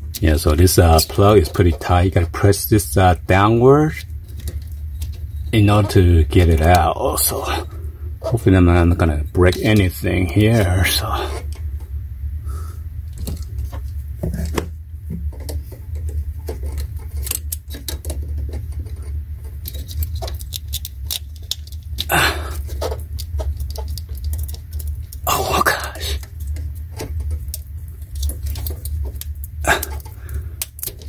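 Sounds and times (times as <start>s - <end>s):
steady low hum: 0.0s - 31.0s
pliers clicking and scraping on plastic: 15.4s - 31.0s.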